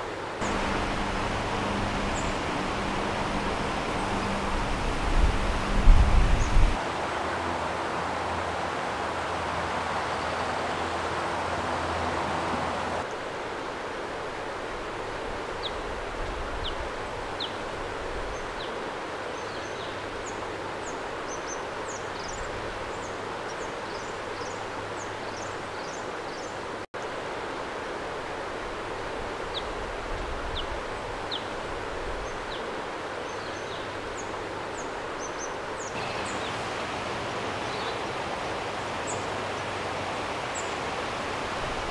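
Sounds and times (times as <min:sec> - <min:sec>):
river water rushing: 0:00.0 - 0:41.9
small birds chirping: 0:00.4 - 0:06.8, 0:33.3 - 0:40.8.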